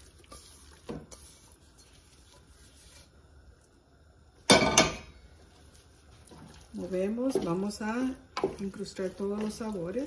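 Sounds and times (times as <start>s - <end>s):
metal bowl clattering on stovetop: 4.5s - 5.2s.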